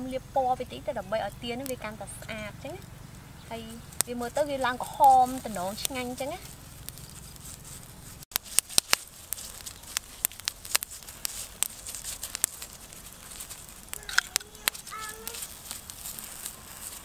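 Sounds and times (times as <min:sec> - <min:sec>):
charcoal fire crackling: 0:00.0 - 0:17.0
faint steady hiss: 0:00.0 - 0:17.0
short pitched calls: 0:13.6 - 0:17.0.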